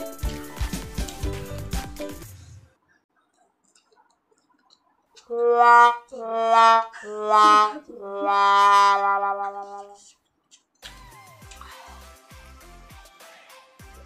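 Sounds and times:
sad trombone sound effect: 5.3 - 10.0.

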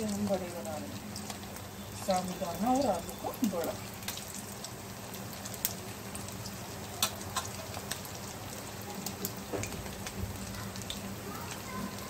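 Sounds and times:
food deep-frying in hot oil: 0.0 - 12.0
sharp oil crackles: 0.0 - 12.0.

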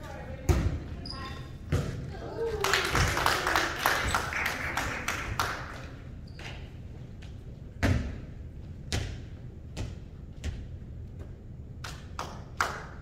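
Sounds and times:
volleyball hits: 1.7 - 3.2.

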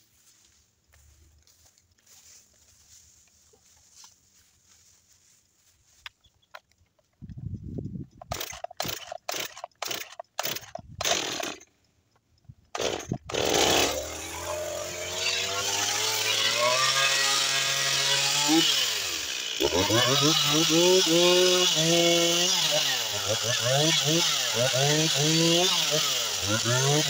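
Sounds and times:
starter cord pulls: 8.0 - 11.7, 12.7 - 15.2
chainsaw engine running: 8.2 - 11.7, 12.7 - 27.0.

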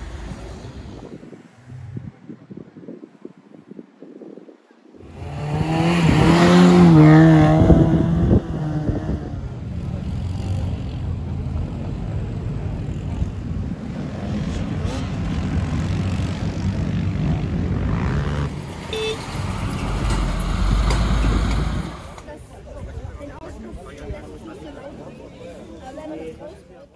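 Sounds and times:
engines running steadily: 5.0 - 22.3
off-road engine revving: 5.0 - 22.3.

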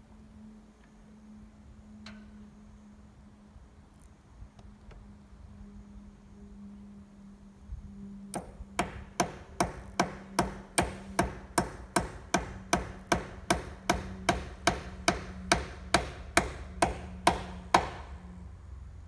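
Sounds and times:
steady low hum: 0.0 - 19.0
hammer striking nails: 8.4 - 18.2.

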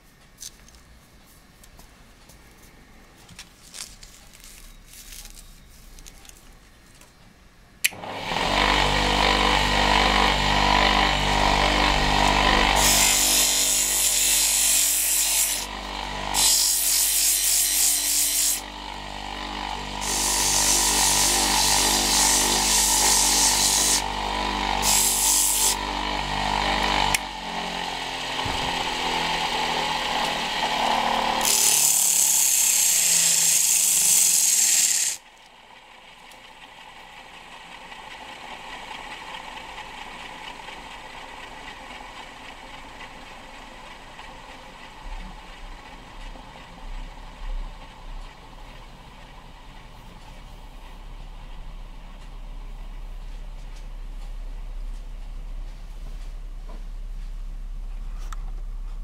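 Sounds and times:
lathe motor running: 8.0 - 50.1
sandpaper hissing on spinning wood: 31.4 - 35.2.

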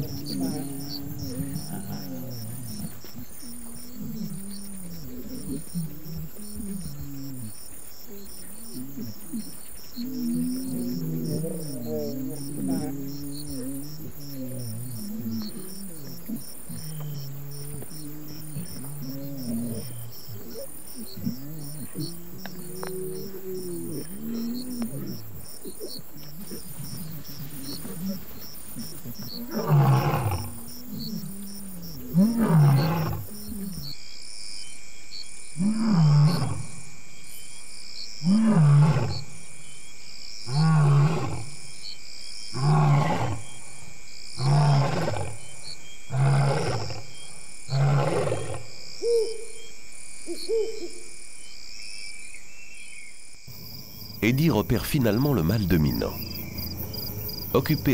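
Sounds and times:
lion roaring: 0.0 - 33.9, 35.6 - 36.7, 38.2 - 39.2, 40.5 - 41.5, 42.6 - 43.6, 44.4 - 45.5, 46.1 - 47.1, 47.7 - 48.7, 53.5 - 57.9
lion grunting softly: 0.0 - 34.0, 42.6 - 43.6.

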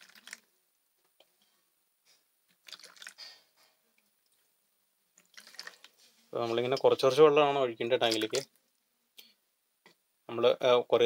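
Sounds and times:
water splashing into basin: 2.6 - 3.4, 5.2 - 6.0, 8.0 - 8.6.

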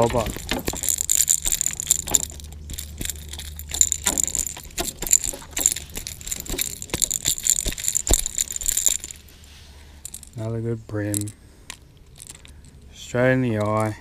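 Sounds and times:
fish flapping in hand: 0.0 - 9.3
fishing hooks rattling: 0.0 - 14.0.

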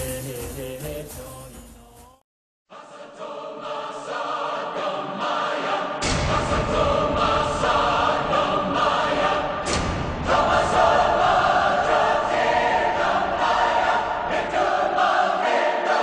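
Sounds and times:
choir singing chant-like lines: 2.7 - 16.0
sharp percussion hit: 6.0 - 7.7.

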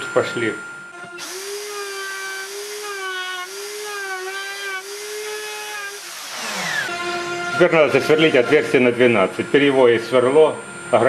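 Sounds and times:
electric router high whine: 0.0 - 11.0
router motor spinning down: 1.1 - 8.6.

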